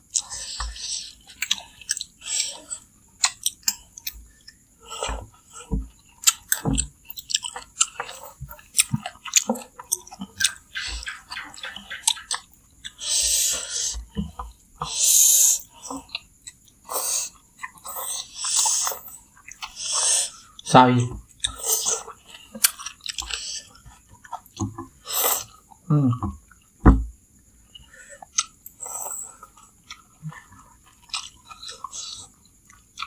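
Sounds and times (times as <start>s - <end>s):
slurping and chewing noodles: 0.0s - 25.8s, 27.6s - 33.0s
hissing slurps: 16.8s - 20.8s, 21.4s - 23.7s, 25.0s - 25.6s.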